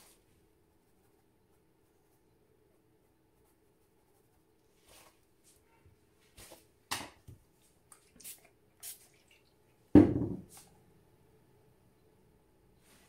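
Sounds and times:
loud knock: 10.0s - 10.4s.

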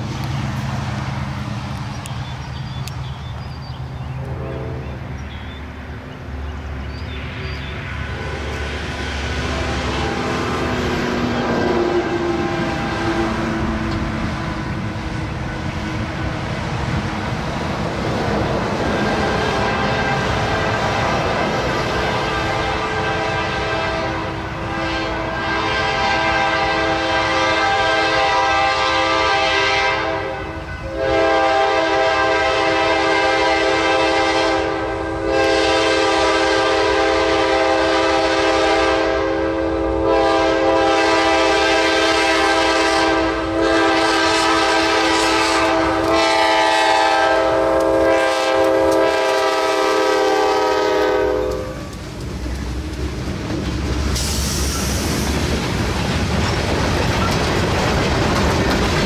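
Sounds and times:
train rumble: 0.0s - 59.0s
locomotive air horn blasts: 4.2s - 5.1s, 8.0s - 10.6s, 11.4s - 13.8s, 19.0s - 20.9s, 22.1s - 52.0s.

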